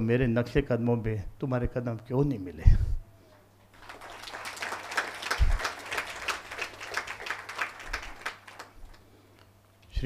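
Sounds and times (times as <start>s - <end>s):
audience applauding: 3.7s - 9.0s.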